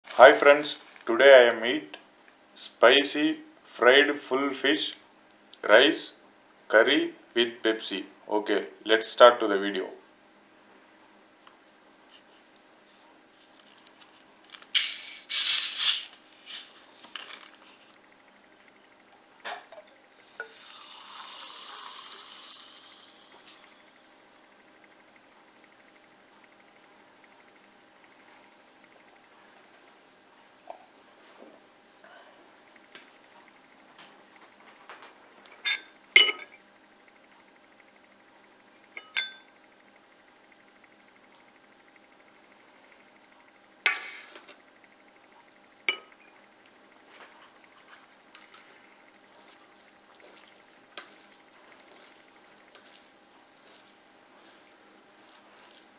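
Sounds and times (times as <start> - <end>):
carbonation hissing from bottle: 14.7 - 16.8, 20.1 - 24.1
glass bowls and plate clinking: 35.6 - 36.6, 39.0 - 39.5, 45.9 - 46.3.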